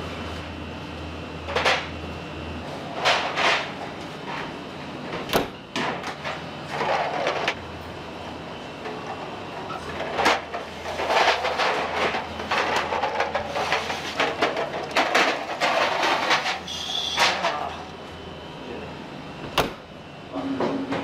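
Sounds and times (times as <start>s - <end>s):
oven door shutting: 5.3s - 5.6s, 19.5s - 19.8s
metal pans clattering and scraping: 10.2s - 17.8s.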